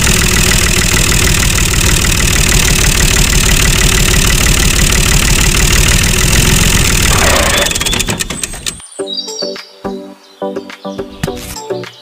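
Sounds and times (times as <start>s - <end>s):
tractor engine idling: 0.0s - 8.8s.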